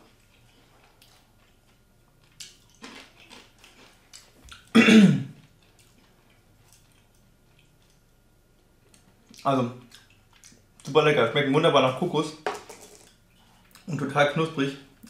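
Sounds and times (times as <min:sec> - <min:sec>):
man coughing: 0:04.8 - 0:05.4.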